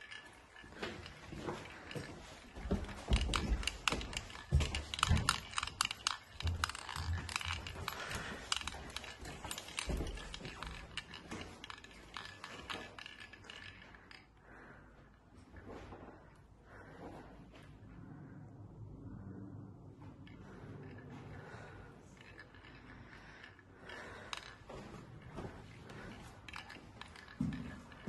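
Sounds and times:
footsteps on carpeted stairs: 0:00.6 - 0:12.6, 0:24.0 - 0:28.0.

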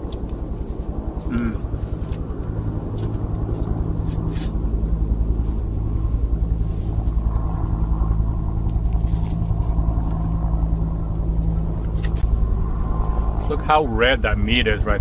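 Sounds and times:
boat motor droning: 0:00.0 - 0:15.0.

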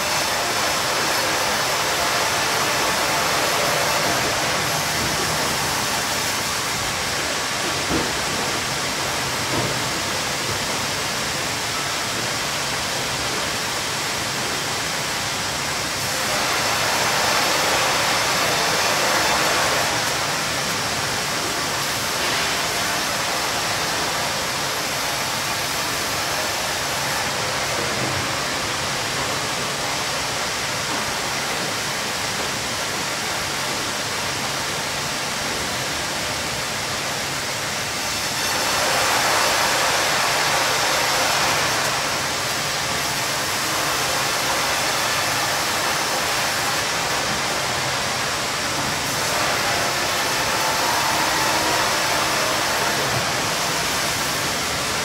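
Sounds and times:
sawmill machinery and saw noise: 0:00.0 - 0:55.0.

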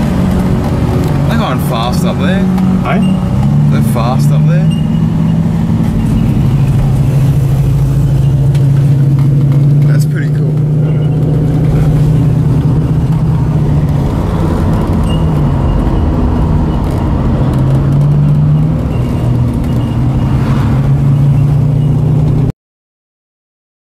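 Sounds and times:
car engine running under load: 0:00.0 - 0:22.5.

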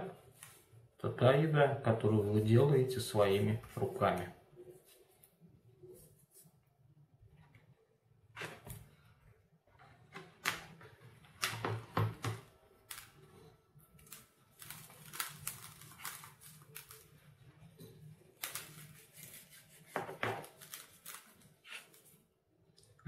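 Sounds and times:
hands rubbing pork fat: 0:18.4 - 0:22.2.

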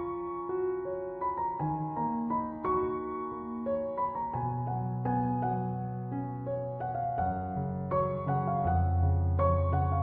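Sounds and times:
slow piano music: 0:00.0 - 0:10.0.

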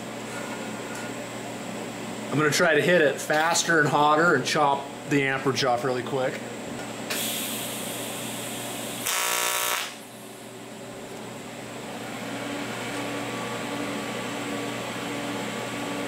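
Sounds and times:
welding arc buzz: 0:07.1 - 0:10.3.

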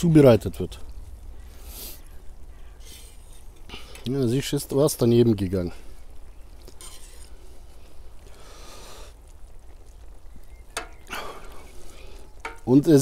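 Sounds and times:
metal skimmer scraping pot: 0:06.7 - 0:07.4, 0:12.2 - 0:13.0.

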